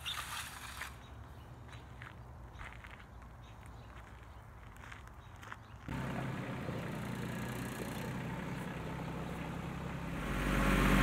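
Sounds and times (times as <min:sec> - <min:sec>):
tractor engine running: 0:05.9 - 0:11.0.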